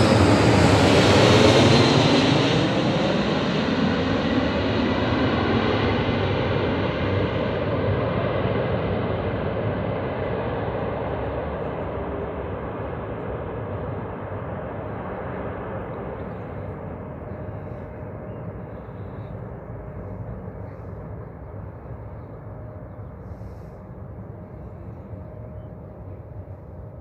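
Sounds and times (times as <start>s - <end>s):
jet engines rumbling: 0.0s - 27.0s.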